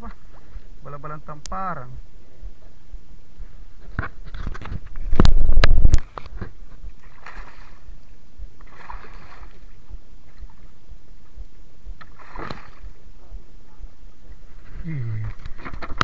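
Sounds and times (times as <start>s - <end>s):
soft splashes: 5.1s - 13.1s.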